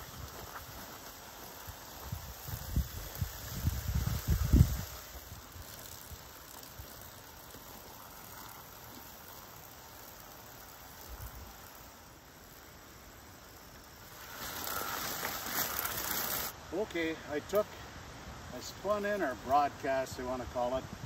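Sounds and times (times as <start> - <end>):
footsteps rustling through plants: 0.0 - 9.0, 14.0 - 16.5
faint outdoor background: 0.0 - 21.0.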